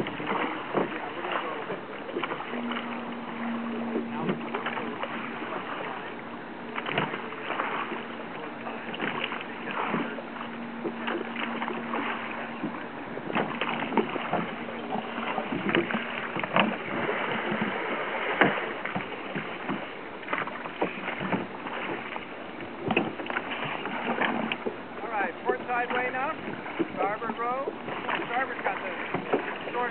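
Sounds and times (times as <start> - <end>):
oars splashing in water: 0.0 - 29.9
steady low hum: 0.0 - 29.9
oars knocking in oarlocks: 10.8 - 27.1, 27.7 - 29.9.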